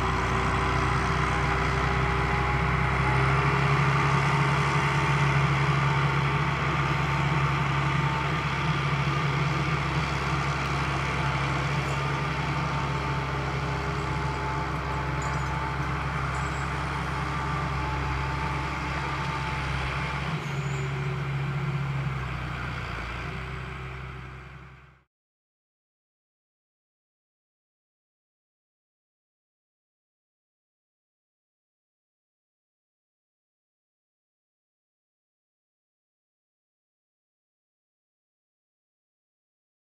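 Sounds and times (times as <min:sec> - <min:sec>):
tractor diesel engine running: 0:00.0 - 0:25.1.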